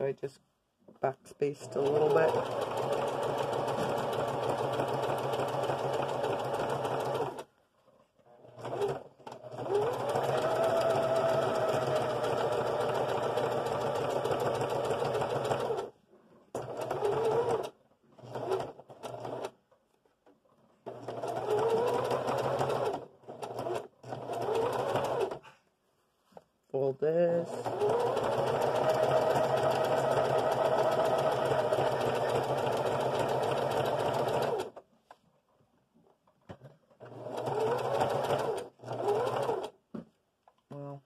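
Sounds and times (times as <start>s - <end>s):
sewing machine running: 1.6s - 7.4s, 8.5s - 15.9s, 16.6s - 19.5s, 20.9s - 25.4s, 27.4s - 34.7s, 37.0s - 39.7s.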